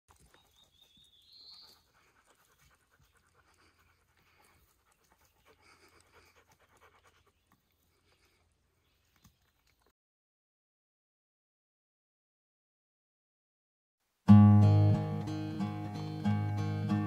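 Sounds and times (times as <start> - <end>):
dog panting: 0.1 - 8.8.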